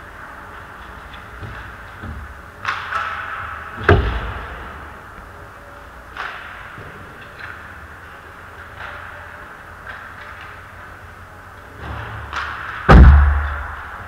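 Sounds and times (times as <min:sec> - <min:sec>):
skate blades scraping ice: 0:00.0 - 0:12.9
hockey puck impact bang: 0:11.8 - 0:14.0.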